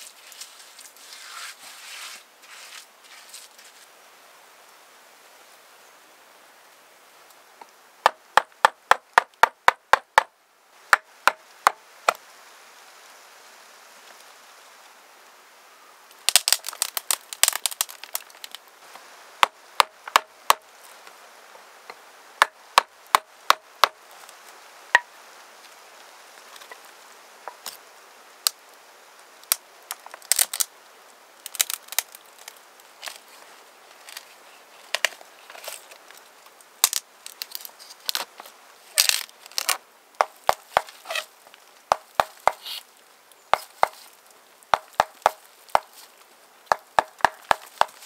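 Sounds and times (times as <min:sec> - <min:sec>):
sharp knocks: 0:46.7 - 0:48.0.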